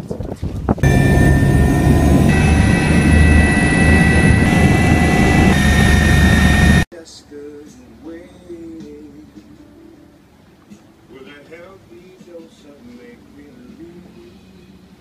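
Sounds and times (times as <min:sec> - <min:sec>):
aircraft engine drone in cabin: 0:00.8 - 0:06.9.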